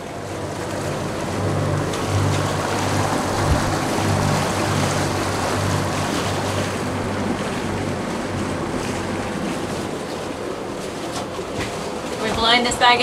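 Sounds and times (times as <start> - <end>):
low hum: 0.0 - 12.5
sea water rushing: 0.0 - 13.0
wind rushing: 1.4 - 10.0.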